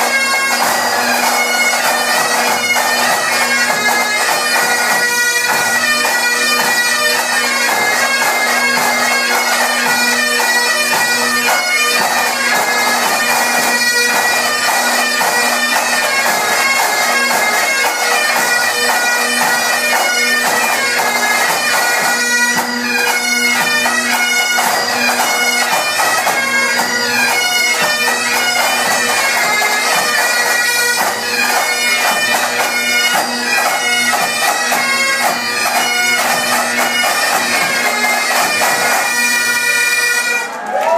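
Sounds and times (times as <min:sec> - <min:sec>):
bagpipes playing: 0:00.0 - 0:40.6.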